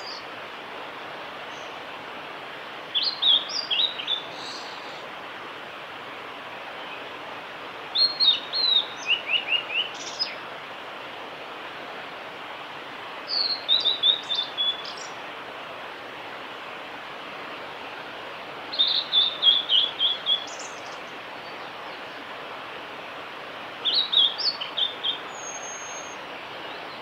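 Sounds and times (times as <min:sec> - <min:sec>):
steady background hiss: 0:00.0 - 0:27.0
bird singing whistled notes: 0:03.0 - 0:05.0, 0:08.0 - 0:10.4, 0:13.3 - 0:15.2, 0:18.7 - 0:21.7, 0:23.8 - 0:26.9.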